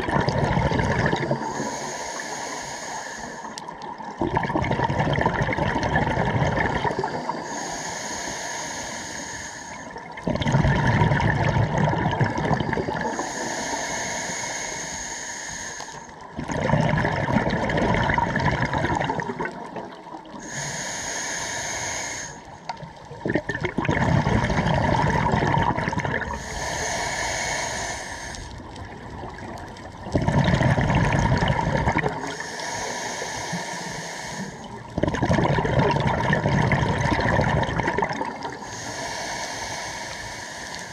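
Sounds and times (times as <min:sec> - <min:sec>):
exhaled bubbles gushing: 0:00.0 - 0:01.6, 0:03.7 - 0:07.4, 0:10.0 - 0:13.2, 0:16.3 - 0:20.4, 0:22.8 - 0:26.5, 0:28.6 - 0:32.4, 0:34.6 - 0:38.7
regulator hissing inhale: 0:01.3 - 0:03.9, 0:06.9 - 0:10.1, 0:12.7 - 0:16.3, 0:20.3 - 0:22.8, 0:26.3 - 0:28.8, 0:32.2 - 0:35.0, 0:38.4 - 0:40.9.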